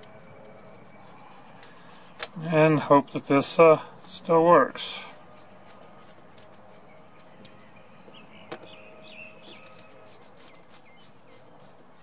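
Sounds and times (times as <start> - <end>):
faint bird chirps: 6.7 - 11.9.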